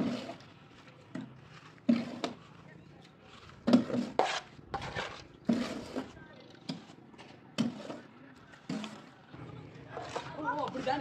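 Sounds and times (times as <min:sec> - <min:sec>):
trowel scraping and knocking: 0:00.0 - 0:00.5, 0:01.1 - 0:02.4, 0:03.6 - 0:09.2, 0:09.9 - 0:11.0.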